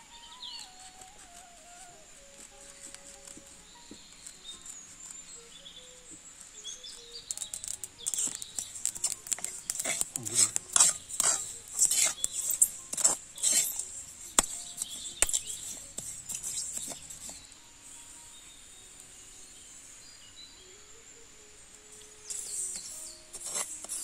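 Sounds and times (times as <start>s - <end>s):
metal spoon scraping seeds in pan: 3.7s - 18.4s, 22.2s - 24.0s.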